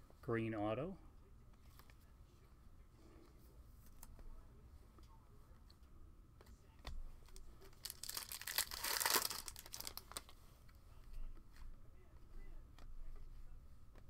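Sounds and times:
foil wrapper tearing and crinkling: 7.8 - 10.2.

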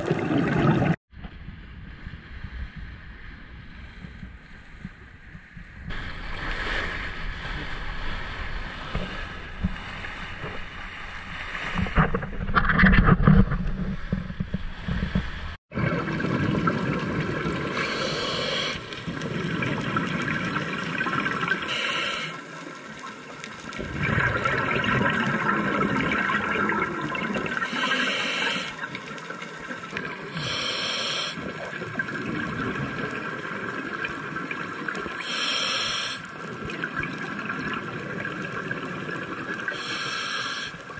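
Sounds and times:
underwater bubbling breath: 17.5 - 20.5, 21.4 - 22.5, 23.8 - 29.1, 30.0 - 33.3, 35.0 - 36.5, 39.1 - 40.9.

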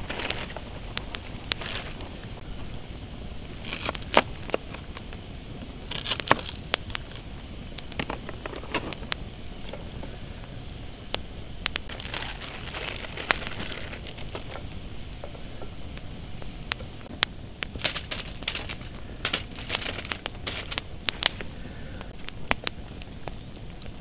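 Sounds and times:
foil and plastic bag crinkling: 0.0 - 2.2, 3.6 - 5.0, 5.8 - 7.2, 11.8 - 14.7, 17.7 - 21.5
campfire popping and crackling: 0.0 - 24.0.

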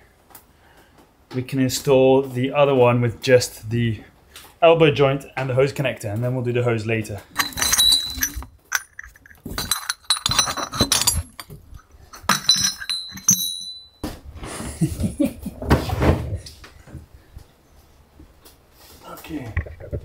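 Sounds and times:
metal fittings clinking: 7.2 - 14.0
rustling and knocking: 7.2 - 14.3.

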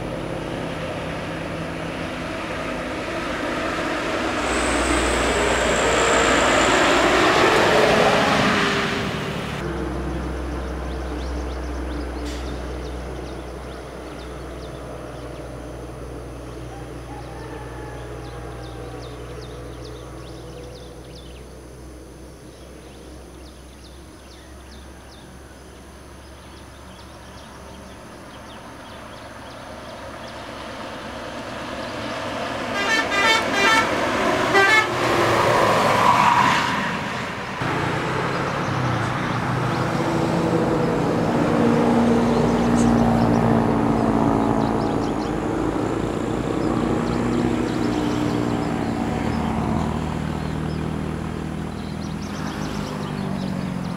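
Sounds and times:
bus engine and tyre noise: 0.0 - 53.9
heavy vehicle engine: 0.0 - 53.9
bus horn toots: 32.7 - 35.4.

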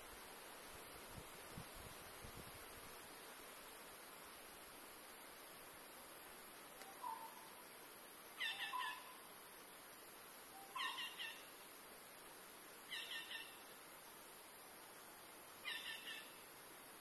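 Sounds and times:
steady high hiss: 0.0 - 17.0
bird calling clear notes: 6.8 - 7.6, 8.4 - 9.2, 10.6 - 11.5, 12.9 - 13.6, 15.6 - 16.4.

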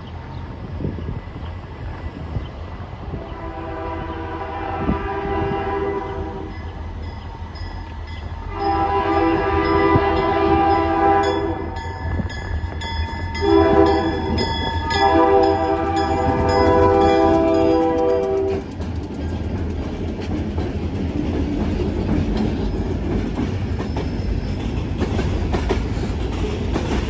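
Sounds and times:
train rumbling: 0.0 - 27.0
locomotive air horn blasts: 3.2 - 6.6, 8.5 - 11.8, 13.4 - 18.7.

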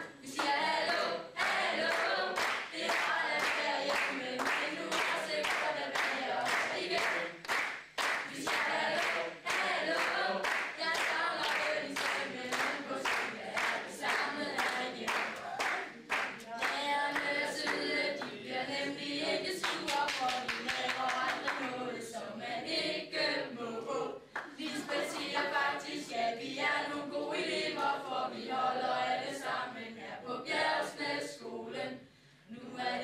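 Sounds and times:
mixed choir singing: 0.0 - 33.0
hand-clapping in time: 1.4 - 18.4, 19.6 - 21.8.

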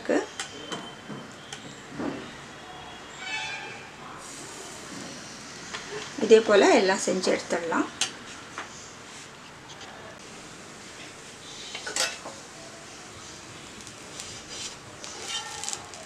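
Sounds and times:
metal spatula scraping a pan: 14.1 - 16.0.

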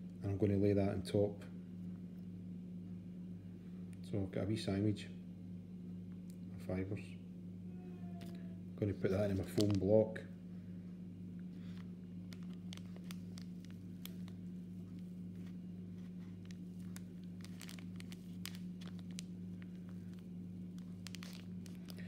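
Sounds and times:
steady low hum: 0.0 - 22.0
faint clicks and rustles: 11.4 - 22.0.

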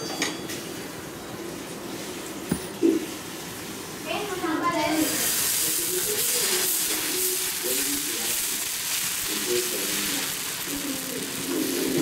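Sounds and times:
batter sizzling on hot griddle: 4.2 - 12.0.

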